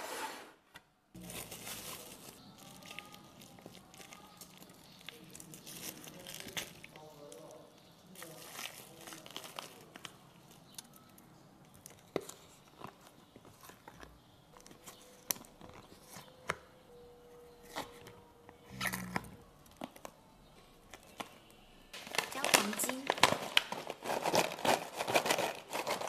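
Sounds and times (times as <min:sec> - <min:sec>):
plastic bag crinkling: 0:01.2 - 0:11.1, 0:20.9 - 0:26.0
frozen food clicking from molds: 0:01.2 - 0:16.7, 0:20.9 - 0:26.0.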